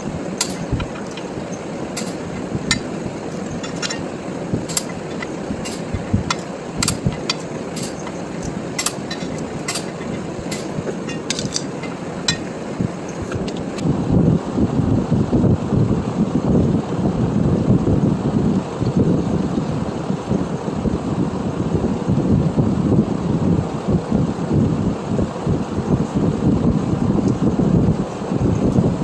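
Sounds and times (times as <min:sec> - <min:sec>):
socket wrench metal clicks: 0:04.7 - 0:12.5.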